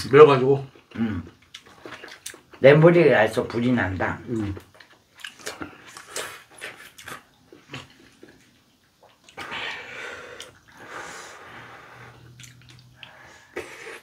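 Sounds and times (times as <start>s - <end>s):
chewing smacks: 0.8s - 2.6s, 4.3s - 9.5s, 12.2s - 13.2s
breath hissing through mouth: 13.1s - 14.0s.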